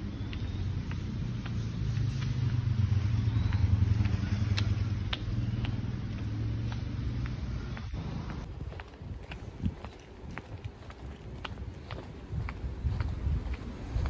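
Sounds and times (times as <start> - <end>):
vehicle engine running: 0.0 - 8.5
footsteps on pavement: 0.0 - 14.0.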